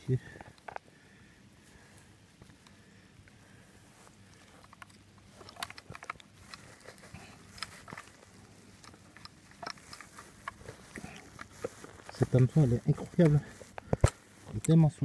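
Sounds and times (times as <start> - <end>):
low steady hum: 0.0 - 15.0
hands clicking and rustling: 4.0 - 14.8.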